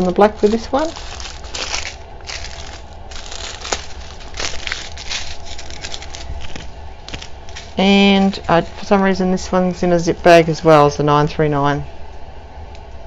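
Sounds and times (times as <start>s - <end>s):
plastic zip bags crinkling: 0.0s - 9.0s.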